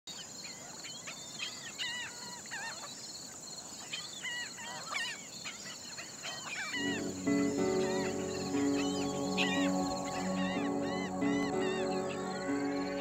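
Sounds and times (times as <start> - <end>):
birds calling: 6.4 - 13.0.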